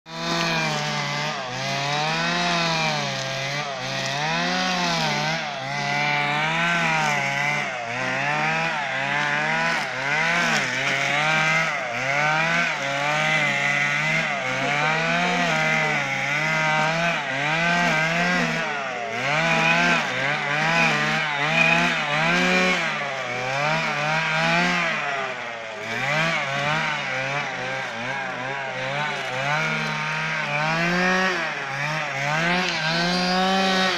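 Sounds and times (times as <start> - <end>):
brush cutter engine cutting grass: 0.1 - 33.9.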